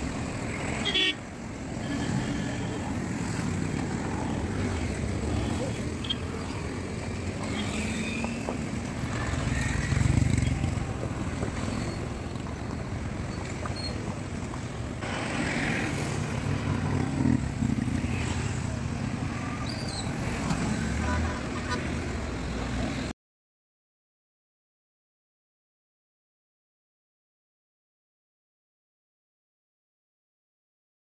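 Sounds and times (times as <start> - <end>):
cars passing: 0.0 - 23.1
motorcycles passing: 0.0 - 23.1
tyres on the road: 0.0 - 23.2.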